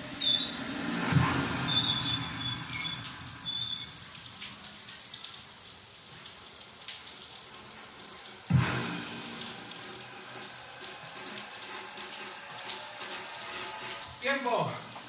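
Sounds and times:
steady hiss: 0.0s - 5.5s, 6.1s - 15.0s
sneakers squeaking on tiled floor: 0.1s - 0.7s, 1.6s - 3.9s.

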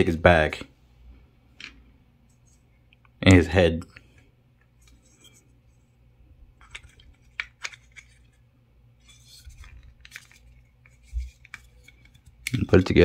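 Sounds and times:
plastic model parts handled: 3.9s - 5.8s, 6.6s - 8.4s, 9.0s - 13.0s.

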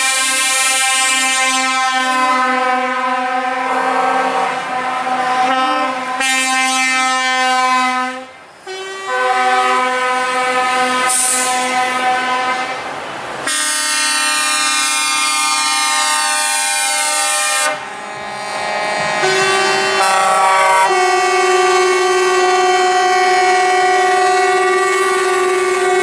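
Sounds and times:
truck air horns: 0.0s - 26.0s.

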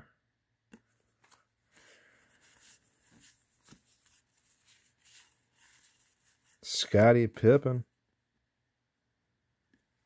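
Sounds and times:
trading cards rustling: 0.8s - 7.6s.

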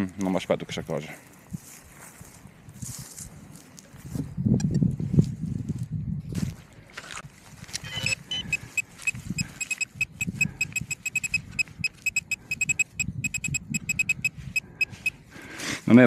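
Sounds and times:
metal detector short high beeps: 7.8s - 15.2s.

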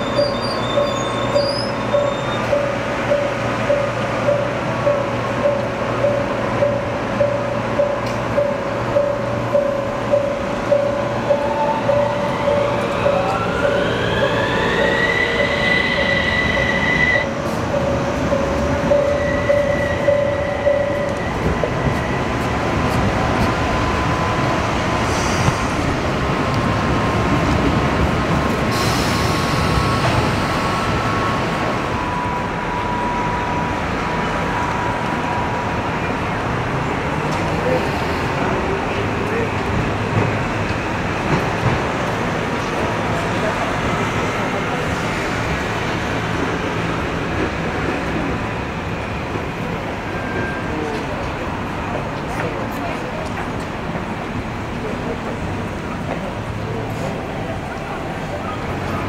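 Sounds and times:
rumble of running tram: 0.0s - 59.0s
tram motors whining: 0.0s - 59.0s
steady higher tone: 0.2s - 22.8s.

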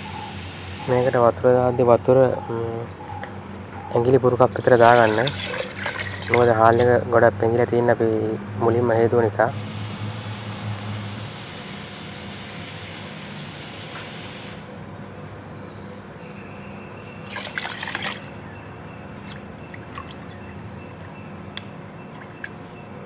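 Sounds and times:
short water splash: 4.8s - 6.8s, 17.3s - 18.2s.

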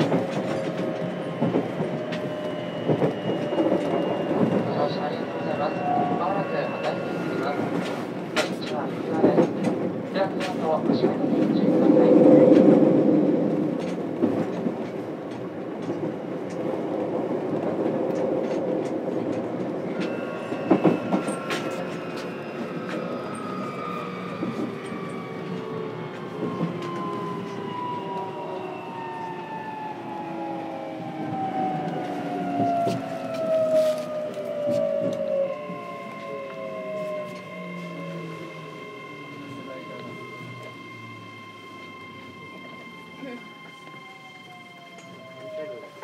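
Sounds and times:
rail-joint clicks: 0.0s - 5.1s, 6.0s - 12.7s, 13.5s - 16.8s, 17.4s - 23.8s, 44.7s - 45.6s
train wheels on rail: 0.0s - 46.0s.

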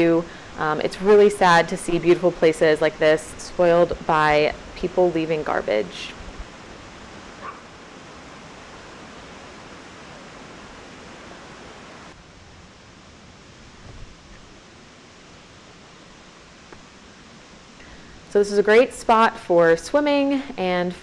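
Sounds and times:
river rushing over boulders: 5.7s - 17.9s.

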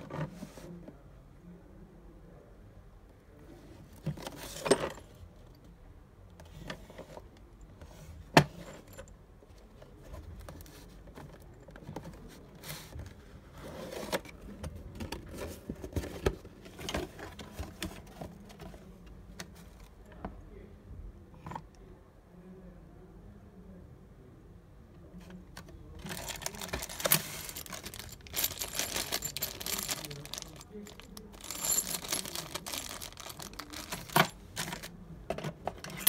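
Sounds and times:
metal lock parts clicking and rattling: 26.0s - 36.0s.

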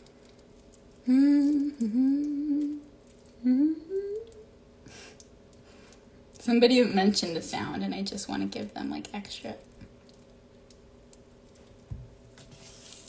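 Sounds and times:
woman humming: 1.0s - 4.5s.

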